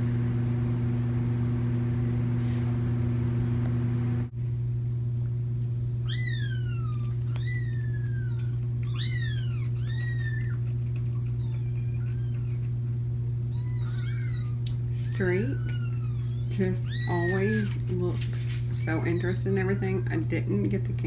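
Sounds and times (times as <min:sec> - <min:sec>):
steady low hum: 0:00.0 - 0:21.0
kitten mewing: 0:06.0 - 0:17.7.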